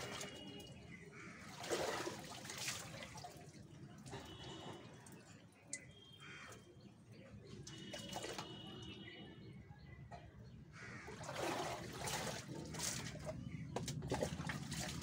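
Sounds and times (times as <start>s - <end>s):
water splashing: 0.0s - 6.6s, 7.4s - 9.0s, 10.9s - 15.0s
water dripping into plastic tub: 7.5s - 9.0s.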